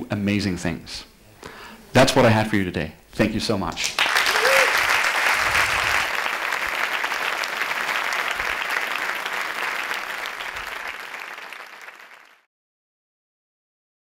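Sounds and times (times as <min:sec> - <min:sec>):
audience applauding: 0:03.8 - 0:12.5.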